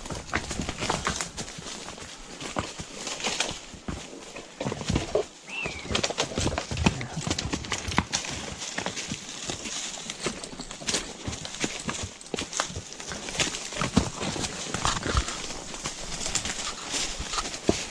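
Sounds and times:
horse hoof clops on rocky ground: 0:00.0 - 0:17.9
high chirp: 0:05.5 - 0:05.9
branches scraping: 0:08.1 - 0:17.9.

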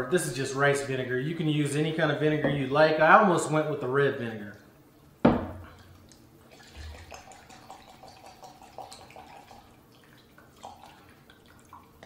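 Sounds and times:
liquid trickling and glugging: 0:05.6 - 0:12.0.

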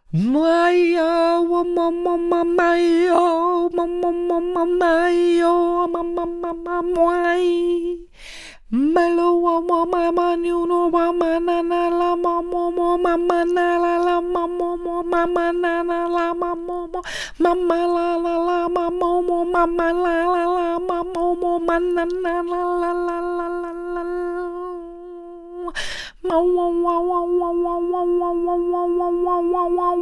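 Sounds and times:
woman singing wordless syllables: 0:00.0 - 0:08.1, 0:08.7 - 0:30.0
sharp breaths: 0:08.1 - 0:08.7, 0:17.0 - 0:17.4, 0:25.8 - 0:26.2.

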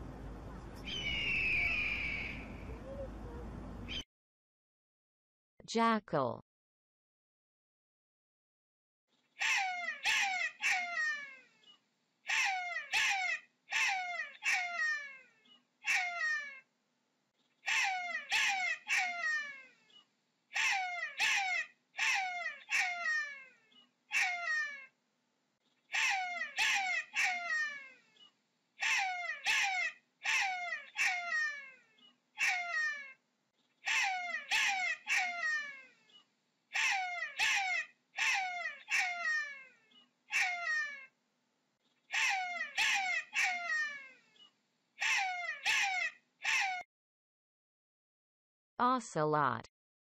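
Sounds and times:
jackal yelping: 0:09.4 - 0:11.1, 0:12.3 - 0:15.2, 0:15.8 - 0:16.6, 0:17.7 - 0:19.6, 0:20.6 - 0:23.4, 0:24.1 - 0:24.8, 0:25.9 - 0:27.9, 0:28.8 - 0:31.7, 0:32.4 - 0:33.1, 0:33.8 - 0:35.8, 0:36.7 - 0:39.6, 0:40.3 - 0:41.0, 0:42.1 - 0:44.1, 0:45.0 - 0:46.8.

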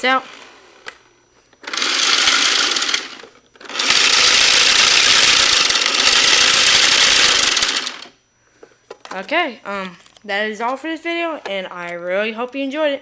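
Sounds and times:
toy motor whirring with rattle: 0:01.6 - 0:08.2.

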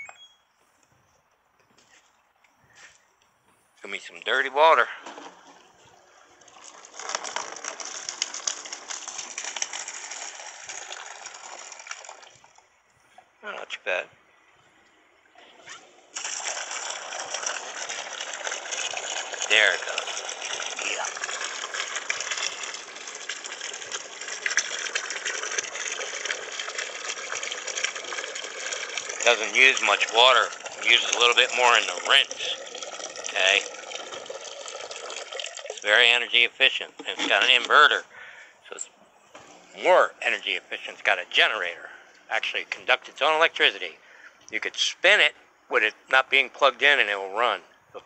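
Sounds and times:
washer drain pump: 0:04.1 - 0:45.3
water splashing into plastic tub: 0:04.2 - 0:12.8, 0:14.1 - 0:38.4.

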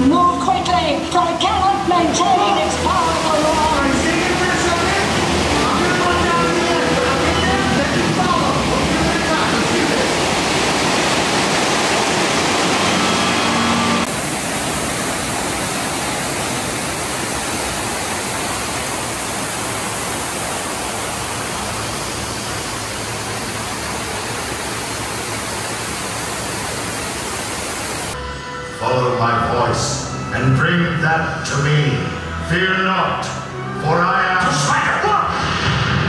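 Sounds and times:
water rushing and swirling: 0:01.1 - 0:28.2.

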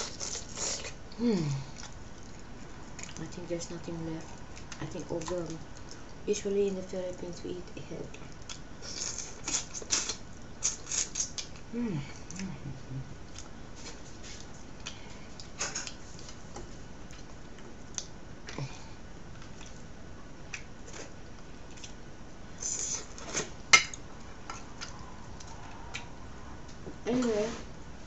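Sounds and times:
person chewing: 0:00.0 - 0:03.2, 0:08.3 - 0:16.4, 0:19.4 - 0:19.9.

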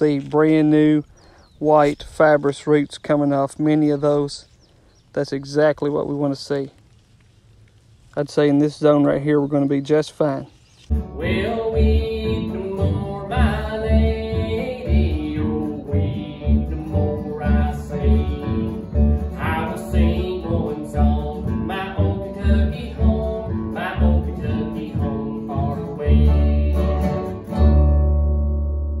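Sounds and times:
acoustic guitar: 0:10.8 - 0:29.0
person singing: 0:10.9 - 0:27.5
upright bass: 0:10.9 - 0:29.0.

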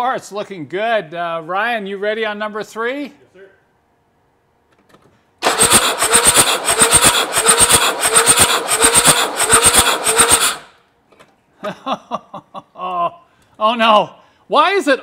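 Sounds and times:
starter motor cranking engine: 0:05.4 - 0:10.8.

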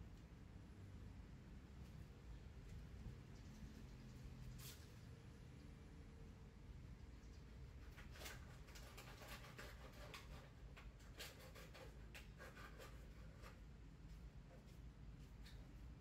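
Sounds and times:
scratchy clicks and rustles: 0:07.8 - 0:15.8.

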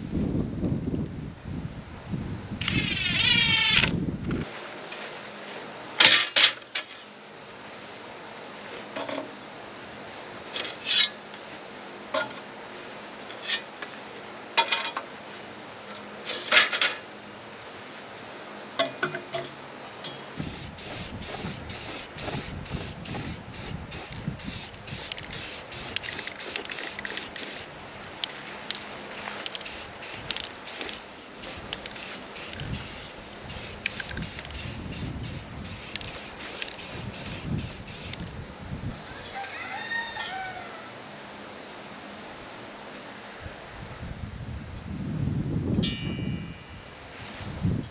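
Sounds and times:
spray paint hissing: 0:20.4 - 0:27.7, 0:29.1 - 0:38.3.

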